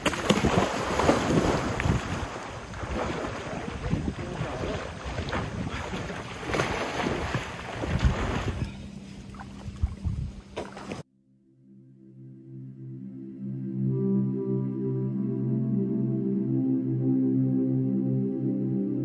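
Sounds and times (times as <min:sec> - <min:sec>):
water splashing: 0:00.0 - 0:11.0
wind on microphone: 0:00.2 - 0:11.0
soft ambient music: 0:11.4 - 0:19.0.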